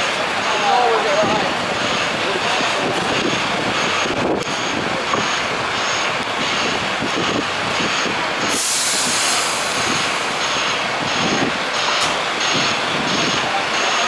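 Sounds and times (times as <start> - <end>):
fire engine idling: 0.0 - 14.0
street noise: 0.0 - 14.0
loud hiss: 8.4 - 10.6.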